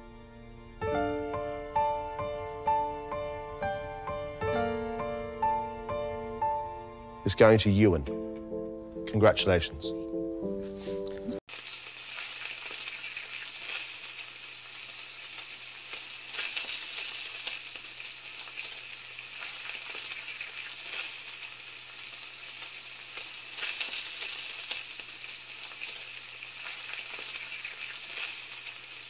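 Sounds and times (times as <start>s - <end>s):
food sizzling in a pan: 11.3s - 29.0s.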